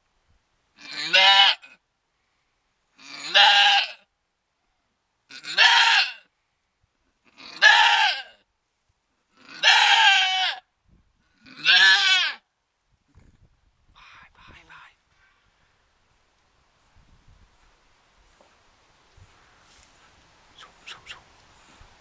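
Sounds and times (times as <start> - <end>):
goat bleating loudly: 0.8 - 1.8, 3.0 - 4.1, 5.3 - 6.3, 7.4 - 8.4, 9.4 - 10.7, 11.4 - 12.4.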